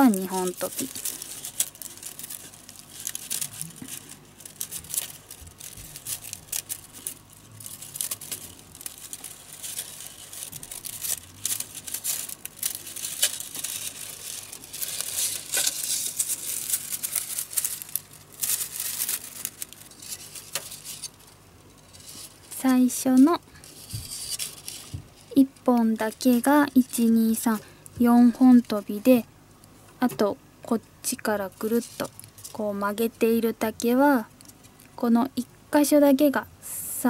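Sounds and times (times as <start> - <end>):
bamboo strips rustling and clicking: 0.0 - 28.9.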